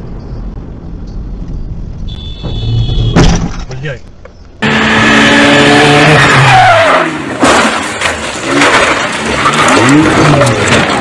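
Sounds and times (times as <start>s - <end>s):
tyres squealing and skidding: 4.6s - 7.6s
car engine revving hard: 4.6s - 7.8s.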